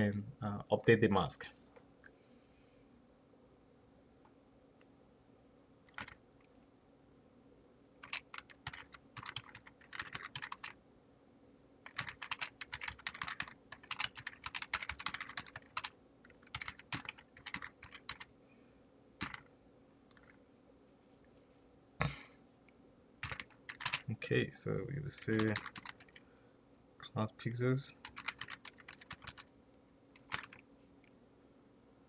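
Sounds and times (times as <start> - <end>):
typing on computer keyboard: 5.9 - 6.2, 8.0 - 10.8, 11.8 - 18.3, 19.2 - 19.5, 23.2 - 24.1, 25.2 - 26.2, 28.0 - 29.5, 30.2 - 30.6.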